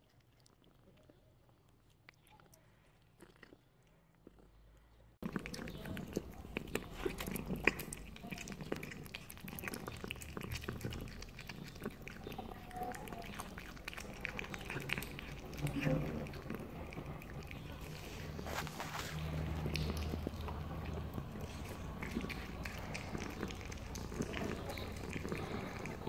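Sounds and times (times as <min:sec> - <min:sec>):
cat chewing meat: 0:00.0 - 0:26.0.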